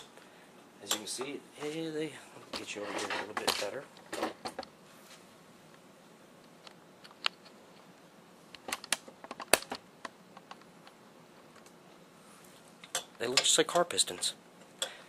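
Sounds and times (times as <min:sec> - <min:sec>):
faint background hiss: 0:00.0 - 0:15.0.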